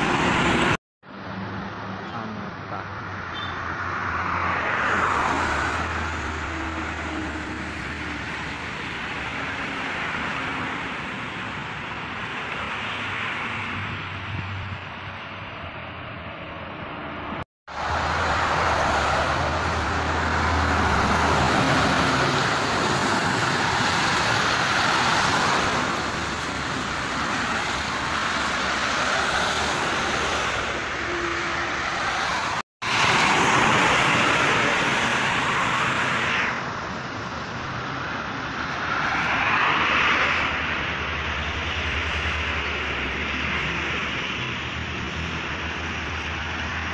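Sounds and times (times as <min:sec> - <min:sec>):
vehicles passing on highway: 0:00.0 - 0:46.9.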